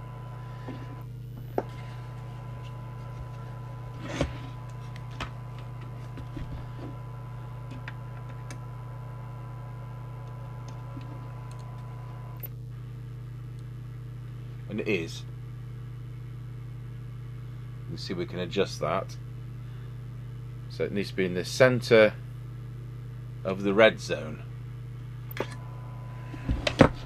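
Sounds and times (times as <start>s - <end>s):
low hum: 0.0s - 14.7s, 24.6s - 27.0s.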